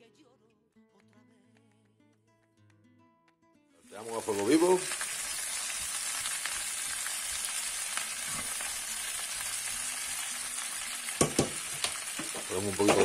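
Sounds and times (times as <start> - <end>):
peppers sizzling in frying pan: 3.8 - 13.0
spatula stirring in pan: 8.2 - 8.8.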